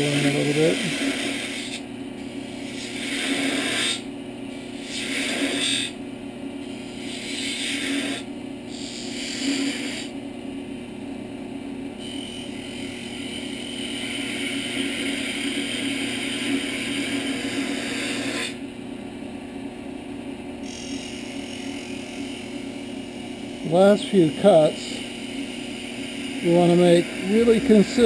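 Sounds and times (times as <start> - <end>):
turning tool cutting wood: 0.0 - 1.8, 2.6 - 4.1, 12.0 - 18.6, 20.6 - 28.0
lathe motor hum: 11.9 - 19.1, 20.4 - 28.0.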